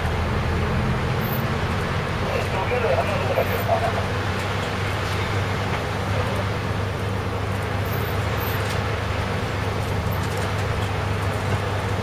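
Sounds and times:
bus engine droning: 0:00.0 - 0:12.0
tyre and road noise: 0:00.0 - 0:12.0.

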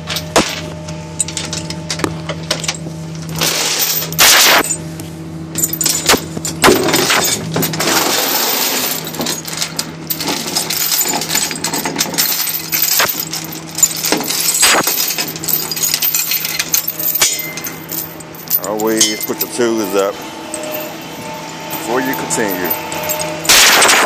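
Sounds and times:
steady low hum: 0:00.0 - 0:24.0
chain clanking on metal deck: 0:05.5 - 0:24.0.

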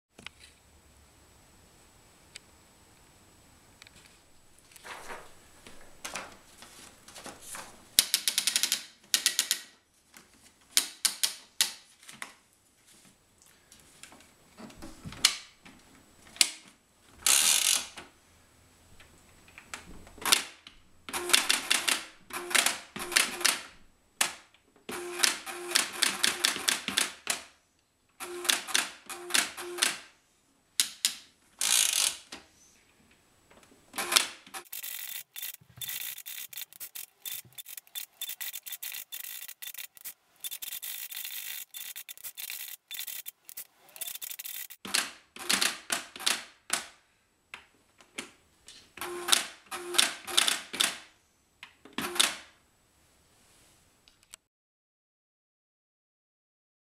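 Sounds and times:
toy typewriter key clicks: 0:08.0 - 0:09.7, 0:34.0 - 0:46.4
high-pitched fine clattering: 0:34.6 - 0:44.8.

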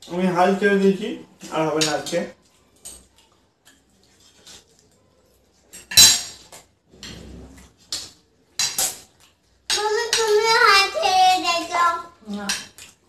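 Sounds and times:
cutlery clinking on plates: 0:05.6 - 0:09.3
cutlery scraping on plates: 0:05.7 - 0:09.1.

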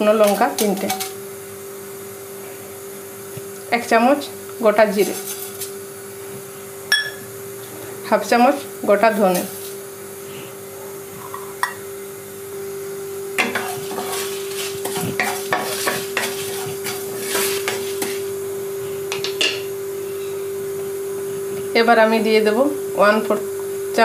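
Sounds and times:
spatula scraping roasting seeds: 0:04.9 - 0:05.8, 0:09.0 - 0:10.6, 0:13.4 - 0:19.0.

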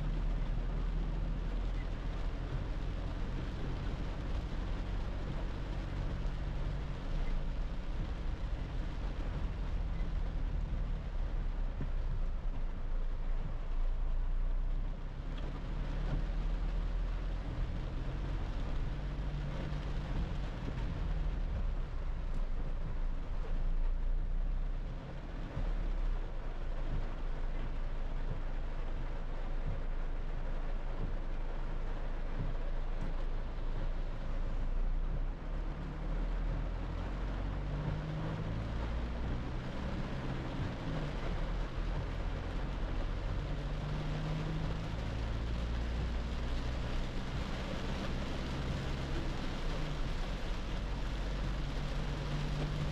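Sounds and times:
car engine and road drone: 0:00.0 - 0:52.9
rain on car body: 0:00.0 - 0:52.9
tyres hissing on wet road: 0:00.0 - 0:52.9.

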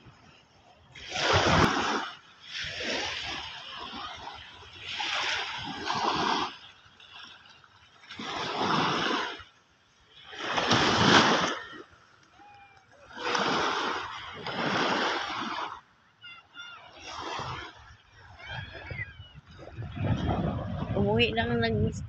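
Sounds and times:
sea waves breaking on shore: 0:00.0 - 0:22.0.

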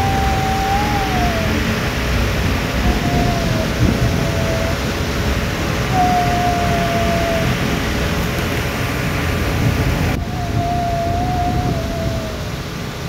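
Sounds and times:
thin whistling tone: 0:00.0 - 0:02.0, 0:05.9 - 0:07.6
underwater rushing rumble and hiss: 0:00.0 - 0:13.0.

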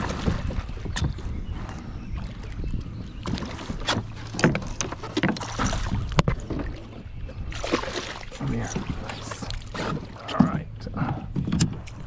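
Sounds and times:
fish splashing in water: 0:07.5 - 0:10.2.

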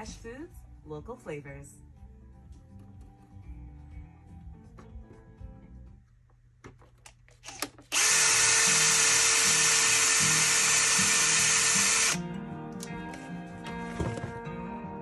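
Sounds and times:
electric screwdriver running: 0:07.4 - 0:12.2.

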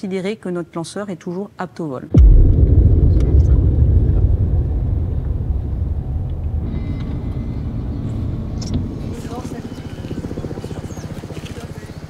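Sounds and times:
car driving on road rumble: 0:02.2 - 0:09.4.

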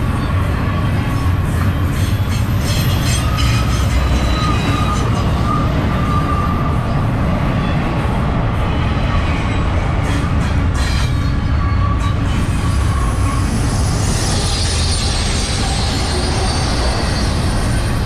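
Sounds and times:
train wheels rumbling on rail: 0:00.0 - 0:18.0
wheel squeal: 0:01.5 - 0:06.7, 0:10.8 - 0:18.0.

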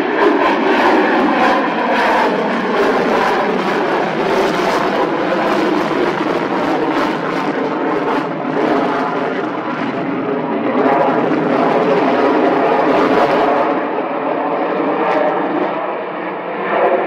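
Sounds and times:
aircraft engine: 0:00.0 - 0:17.0.

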